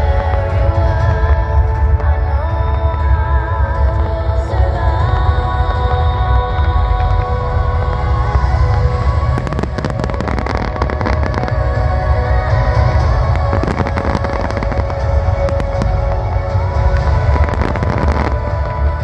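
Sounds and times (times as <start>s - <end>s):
loud music with held notes: 0.0s - 19.0s
fireworks bursting and crackling: 4.9s - 19.0s.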